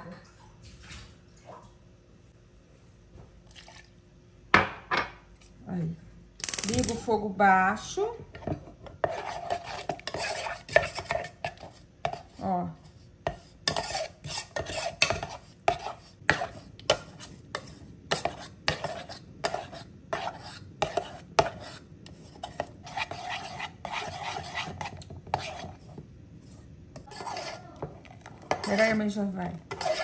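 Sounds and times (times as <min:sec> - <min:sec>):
metal spoon scraping a saucepan: 0:08.3 - 0:30.0.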